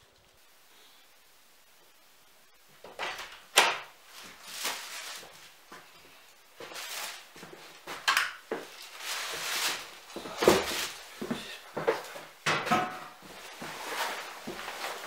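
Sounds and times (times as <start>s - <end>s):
plastic bag rustling: 2.8s - 12.3s, 13.2s - 15.0s.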